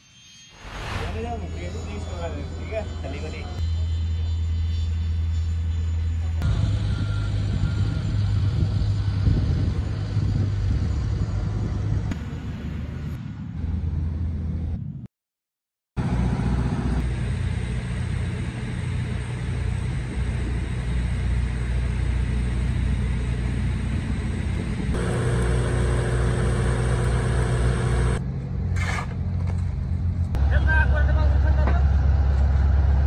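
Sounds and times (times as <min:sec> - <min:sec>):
machinery engine rumble: 0:16.0 - 0:33.0.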